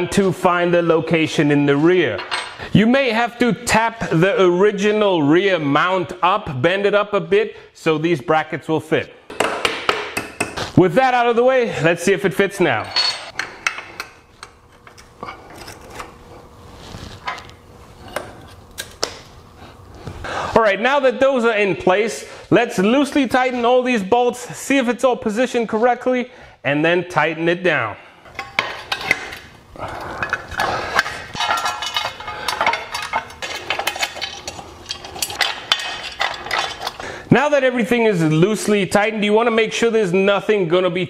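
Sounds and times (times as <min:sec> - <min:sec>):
metal brackets and bolts clicking: 0:02.2 - 0:02.6, 0:12.8 - 0:16.1, 0:30.2 - 0:37.0
metal plate clinking and scraping: 0:12.8 - 0:14.0, 0:30.1 - 0:37.0.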